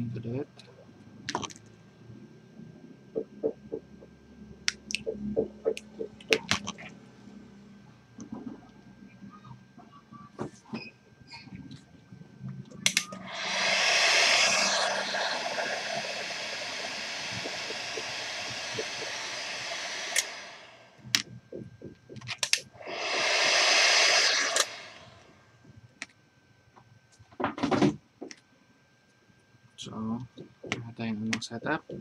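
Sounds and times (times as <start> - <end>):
heat gun blowing: 12.9 - 20.9, 22.7 - 25.3.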